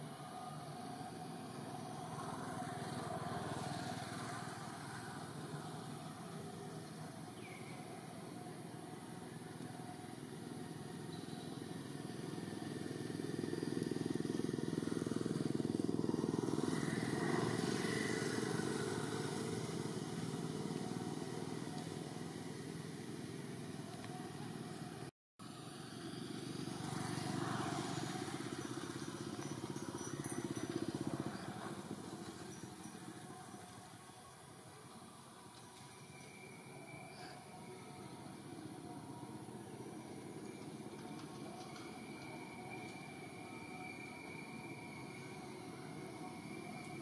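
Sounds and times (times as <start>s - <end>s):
motor vehicle passing: 12.0s - 23.9s, 24.5s - 33.7s.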